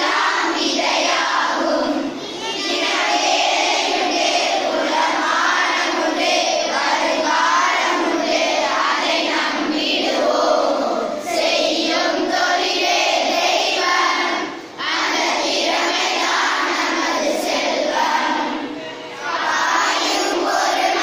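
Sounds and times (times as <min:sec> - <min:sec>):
children singing in chorus: 0:00.0 - 0:21.0.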